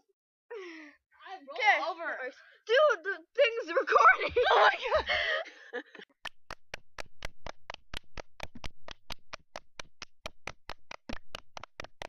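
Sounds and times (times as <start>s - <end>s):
sharp taps: 6.2s - 12.0s.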